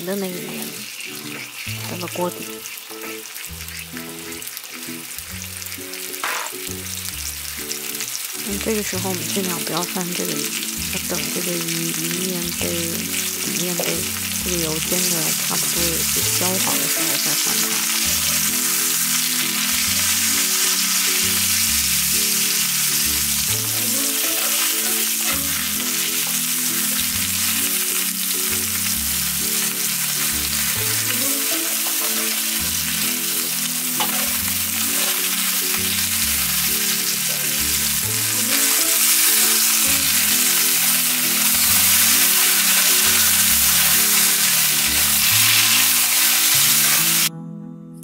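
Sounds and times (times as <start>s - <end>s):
fish frying in oil: 0.0s - 47.3s
background music with bass line: 1.7s - 9.5s, 12.6s - 47.3s.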